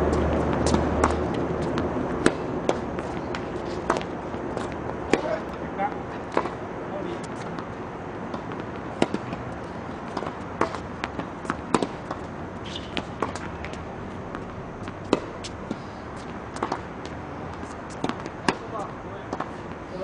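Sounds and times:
rackets striking tennis ball: 0.0 - 20.0
tennis ball bouncing on court: 0.1 - 20.0.

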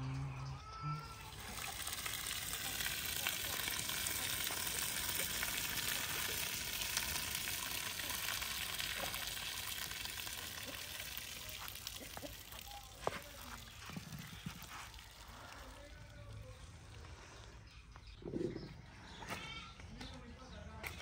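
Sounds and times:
hot water pouring from a pan: 1.2 - 16.6.

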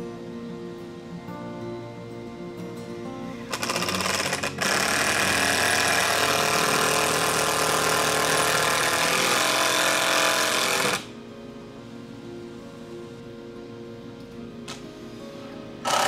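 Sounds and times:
power drill driving into wood: 3.5 - 11.1.

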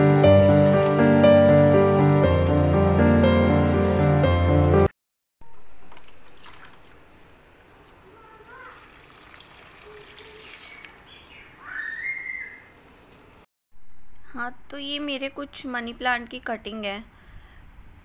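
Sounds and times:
water trickling onto soil: 5.9 - 7.1, 8.6 - 11.1.

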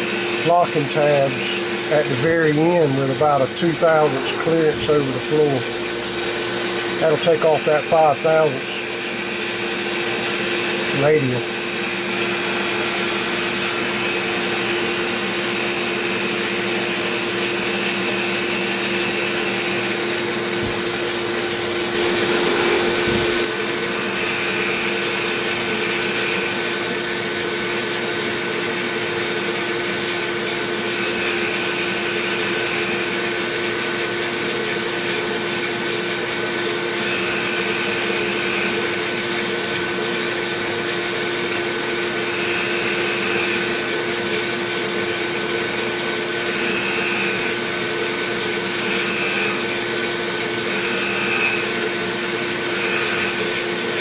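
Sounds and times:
hiss of cutting and coolant spray: 0.0 - 54.0
milling machine spindle whine: 0.0 - 54.0
higher cutting note: 0.6 - 8.8.

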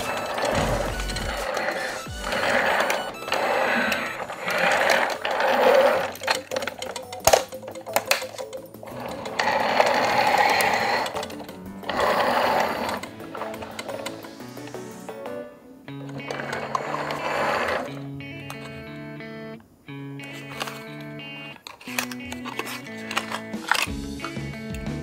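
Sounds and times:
plastic case rattling and scraping: 0.0 - 14.2, 16.0 - 17.9, 20.2 - 21.0, 21.6 - 24.0
background music: 0.0 - 25.0
sharp plastic clicks: 3.8 - 9.2, 20.2 - 24.4.

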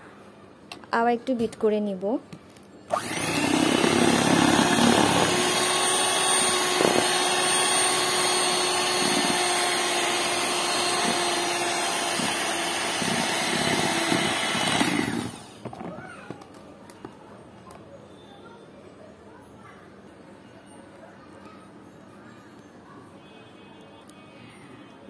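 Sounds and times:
electric hand mixer whirring: 2.9 - 15.9.

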